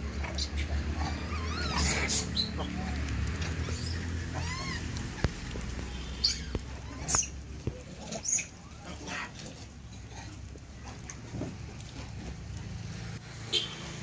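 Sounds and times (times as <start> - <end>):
monkeys squeaking: 0.2 - 5.5, 6.2 - 9.3.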